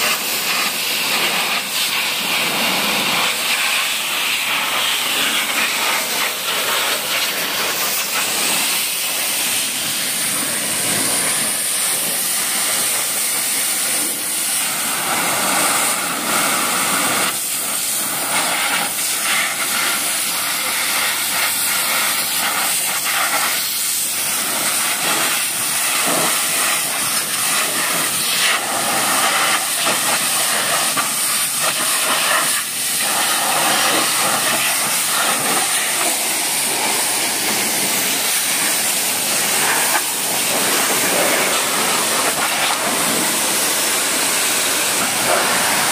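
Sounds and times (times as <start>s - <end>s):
pressure washer spray hissing: 0.0s - 45.9s.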